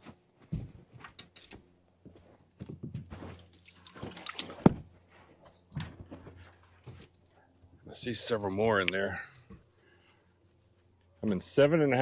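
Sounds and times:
water dripping: 3.5 - 4.6.

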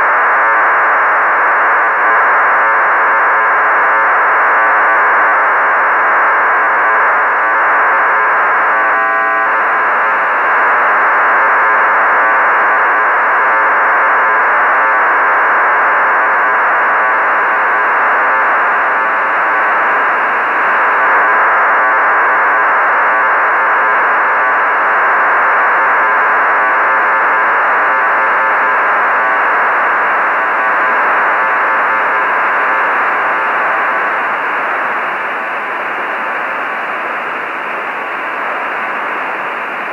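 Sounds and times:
harsh radio data hiss: 26.5 - 39.9.

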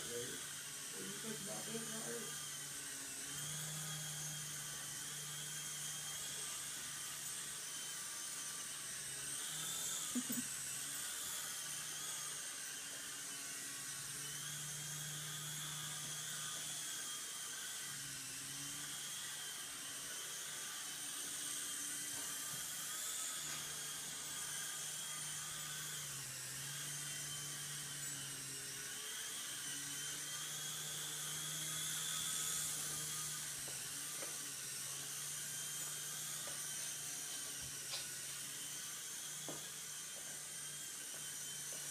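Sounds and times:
rotor hum: 0.0 - 8.7
electric motor whine: 0.0 - 41.9.

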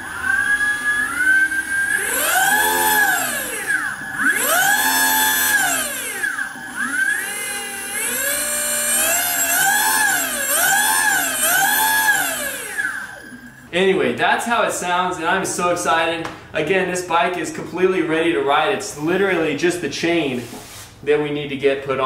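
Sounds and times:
electric motor whine revving: 0.0 - 13.7.

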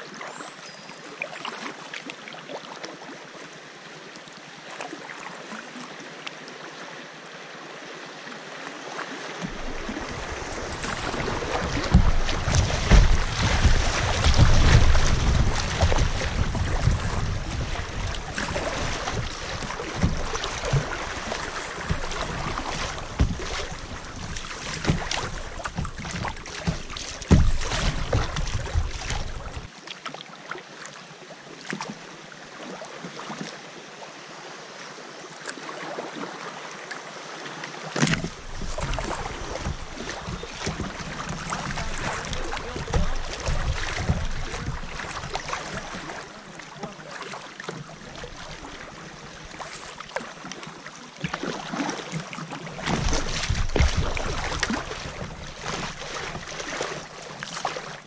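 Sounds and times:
creek water rushing and splashing: 0.0 - 58.0
water lapping softly: 0.0 - 58.0
sharp splash: 9.4 - 29.7, 38.0 - 58.0
wind rumbling on microphone: 9.5 - 29.7, 38.1 - 46.4.

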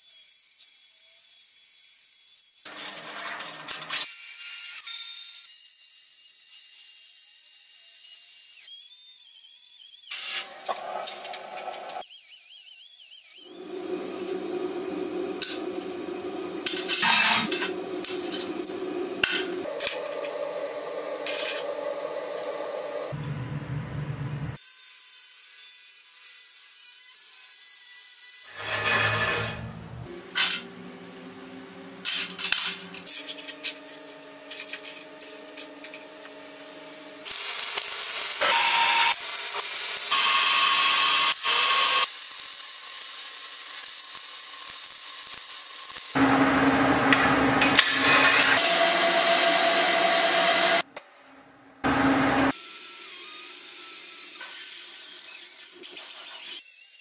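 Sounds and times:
welding crackling hiss: 13.4 - 23.2, 32.0 - 46.2.

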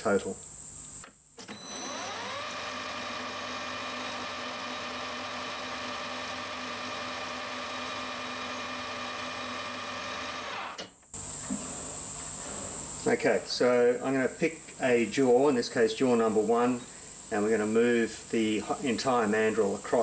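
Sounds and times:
metal lathe whining: 1.5 - 10.8.

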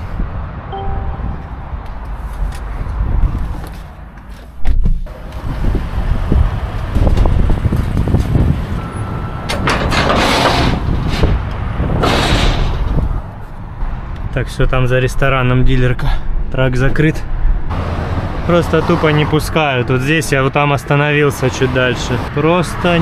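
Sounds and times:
vehicle engine rumbling: 0.0 - 14.3.

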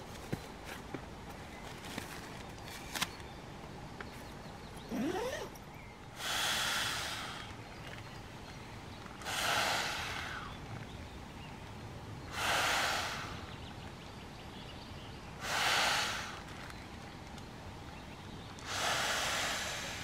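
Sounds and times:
hissing puffs of air: 6.1 - 7.6, 9.2 - 10.6, 12.3 - 13.5, 15.4 - 16.5, 18.6 - 20.0.

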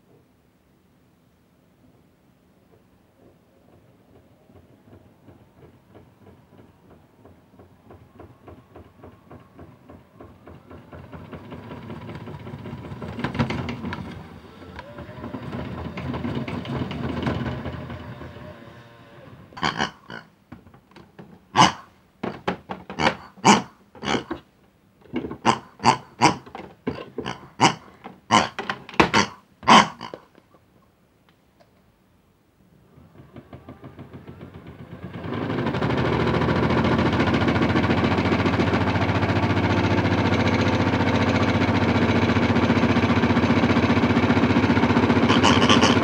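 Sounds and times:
toy washing machine running: 8.0 - 19.0, 33.0 - 46.0
pig toys oinking: 18.3 - 20.3, 21.6 - 21.9, 22.9 - 24.4, 25.2 - 30.3, 45.2 - 46.0.

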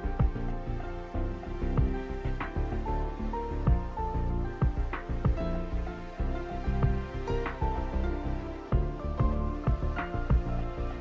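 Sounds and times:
music with pulsing bass: 0.0 - 11.0.

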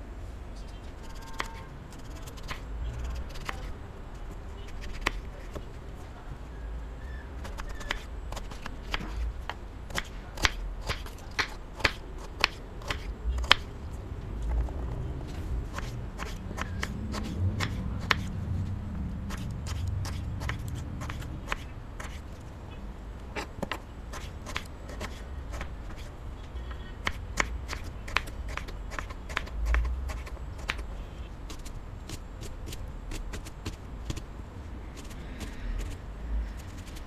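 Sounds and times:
knife chopping on wooden board: 15.7 - 18.3.

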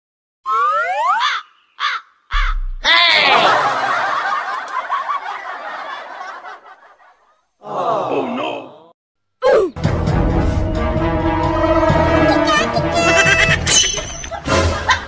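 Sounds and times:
cackling laughter-like sound: 2.4 - 7.4, 12.3 - 15.0.

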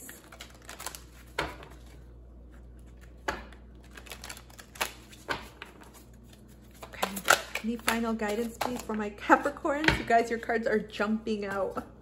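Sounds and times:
cards rustling: 0.0 - 3.2, 3.8 - 9.0.

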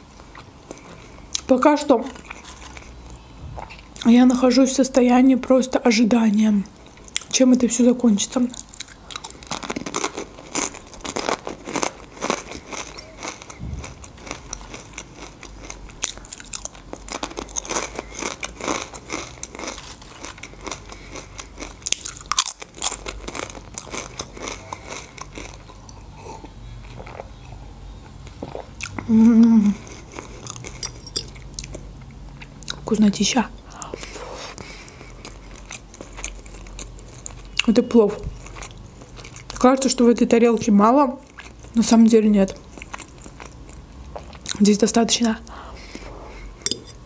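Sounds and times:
crunching chips: 8.6 - 25.9
person humming: 29.0 - 29.8.

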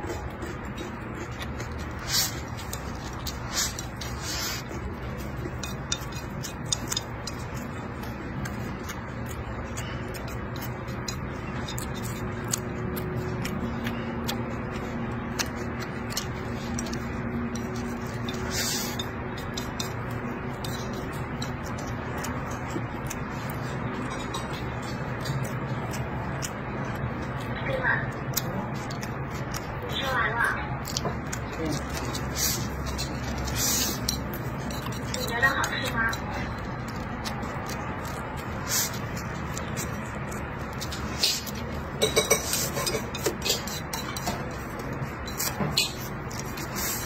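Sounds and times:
chewing and lip-smacking: 0.0 - 47.0
chopsticks clicking on plate: 5.0 - 27.4.

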